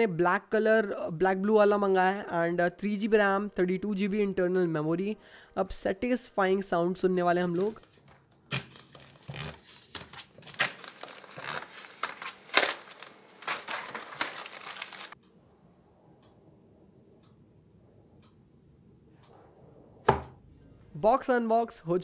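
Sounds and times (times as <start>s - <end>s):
plastic wrap tearing and crinkling: 8.5s - 15.2s.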